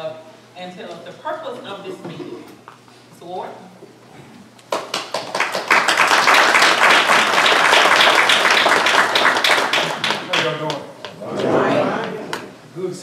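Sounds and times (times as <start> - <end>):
audience applauding: 4.7 - 12.5.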